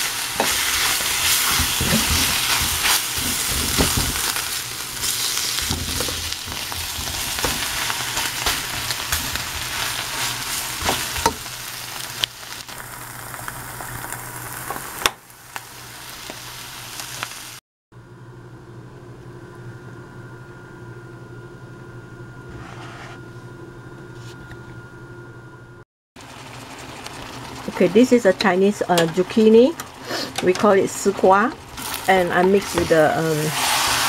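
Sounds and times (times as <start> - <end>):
vegetables and egg sizzling in a pan: 0.0 - 17.6, 26.2 - 30.2, 30.8 - 34.0.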